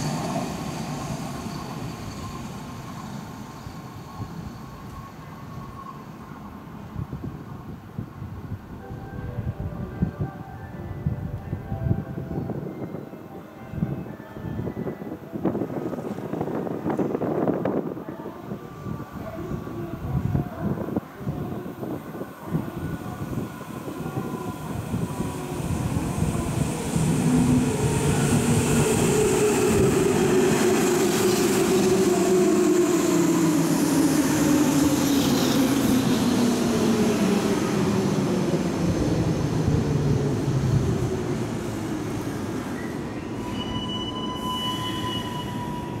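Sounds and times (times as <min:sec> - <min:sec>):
high steady squeal: 0:00.8 - 0:06.2, 0:42.6 - 0:46.0
wheels rumbling on rail: 0:15.0 - 0:18.1.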